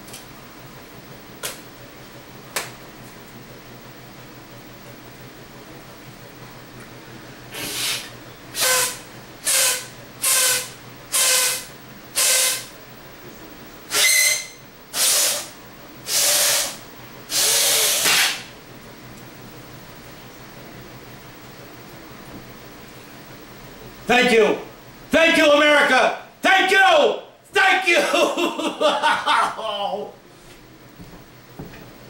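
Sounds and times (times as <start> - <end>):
man blowing hard breaths: 7.5 - 11.6
air whistling faintly: 7.5 - 12.8, 13.9 - 18.5.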